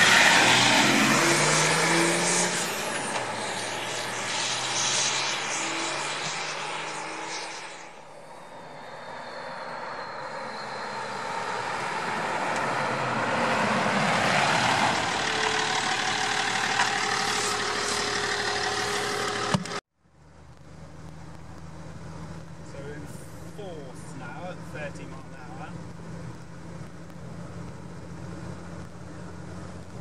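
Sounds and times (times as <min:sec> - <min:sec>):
vehicle driving past: 0:00.0 - 0:19.6
engine heard from inside cab: 0:00.8 - 0:30.0.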